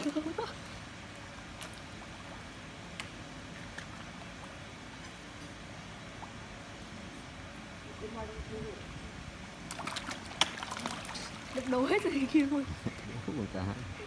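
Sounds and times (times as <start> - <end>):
fish splashing at water surface: 9.6 - 12.3.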